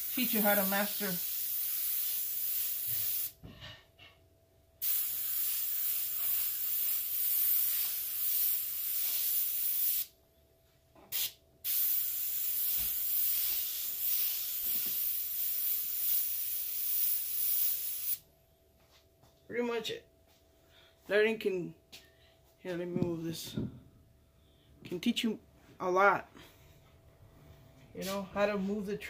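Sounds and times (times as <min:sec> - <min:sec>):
airbrush spraying hiss: 0:00.0 - 0:03.4, 0:04.8 - 0:10.1, 0:11.1 - 0:18.2.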